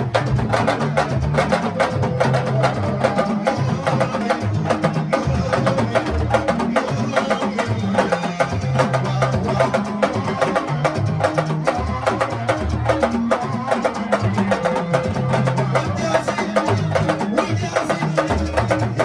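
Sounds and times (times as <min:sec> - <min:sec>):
drum ensemble fast rhythm: 0:00.0 - 0:19.0.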